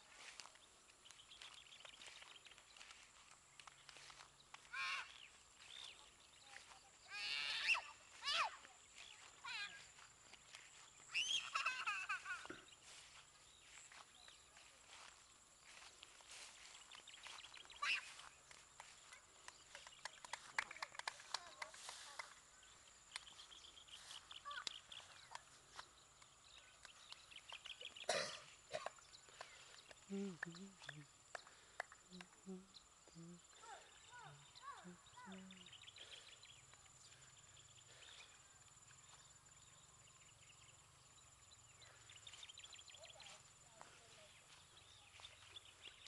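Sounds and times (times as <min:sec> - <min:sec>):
faint birdsong chirps: 0:00.0 - 0:46.0.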